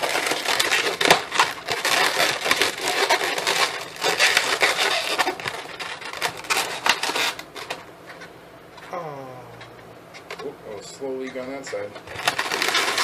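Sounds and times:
balloons squeaking and rubbing: 0:00.0 - 0:07.8, 0:11.0 - 0:13.0.

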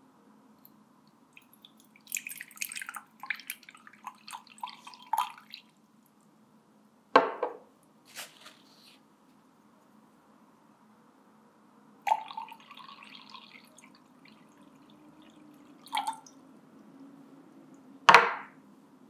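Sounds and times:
water pouring into glass: 0:01.3 - 0:05.8, 0:12.1 - 0:16.4.

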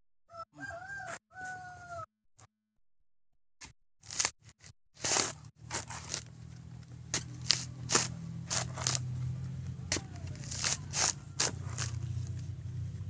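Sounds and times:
rooster crowing: 0:00.3 - 0:02.1, 0:10.0 - 0:12.4
coconut husk tearing on spike: 0:04.0 - 0:04.3, 0:05.0 - 0:12.5.

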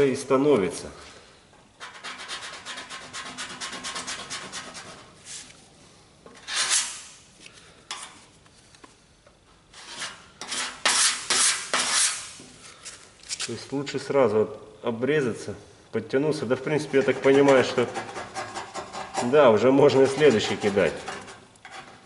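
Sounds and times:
sanding block rasping on filler: 0:01.8 - 0:05.4, 0:09.8 - 0:12.4, 0:16.8 - 0:22.0.

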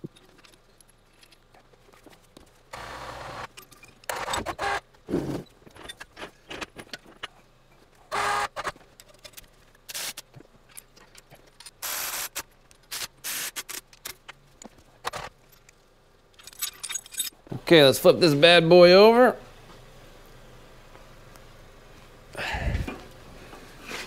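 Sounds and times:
steel chains jangling: 0:16.4 - 0:17.4.

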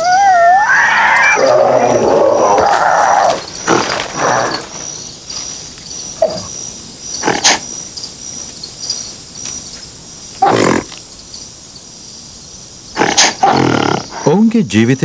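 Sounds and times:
wild animal calls and grunts: 0:00.0 - 0:08.0, 0:10.3 - 0:11.0, 0:12.9 - 0:14.4
insects chirping: 0:00.0 - 0:15.0.

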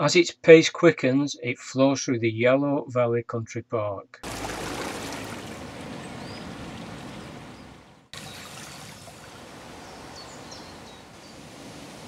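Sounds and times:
stream running over stones: 0:04.2 - 0:12.0.

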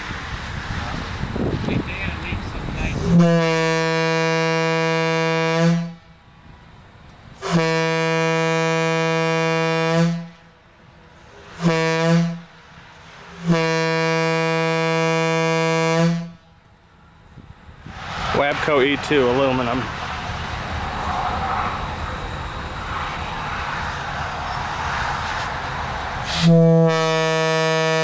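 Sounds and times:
locomotive air horn blasts: 0:03.0 - 0:06.1, 0:07.4 - 0:10.6, 0:11.5 - 0:12.6, 0:13.2 - 0:16.6, 0:26.2 - 0:28.0.

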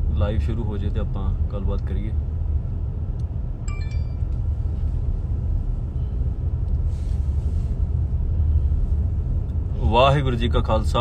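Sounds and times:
car cabin road rumble: 0:00.0 - 0:11.0
faint high tone: 0:03.7 - 0:04.4.

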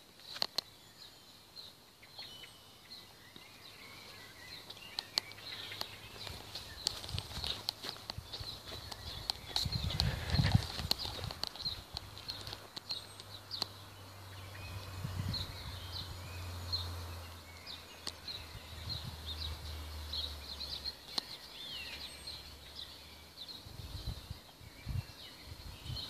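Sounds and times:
small birds chirping and singing: 0:00.0 - 0:26.0
sharp clicks: 0:08.8 - 0:13.8.

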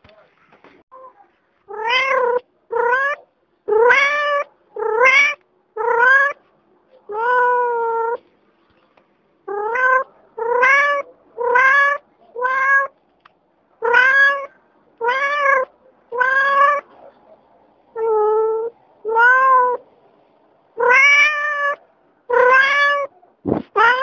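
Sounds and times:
cat meowing: 0:01.0 - 0:06.4, 0:07.1 - 0:08.2, 0:09.5 - 0:13.0, 0:13.8 - 0:16.9, 0:18.0 - 0:19.8, 0:20.8 - 0:23.1, 0:23.7 - 0:24.0.

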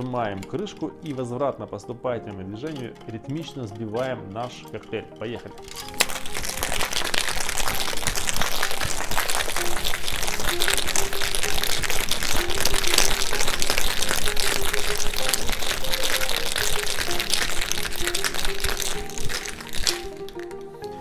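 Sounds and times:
ice rattling in metal shaker: 0:05.6 - 0:20.8.

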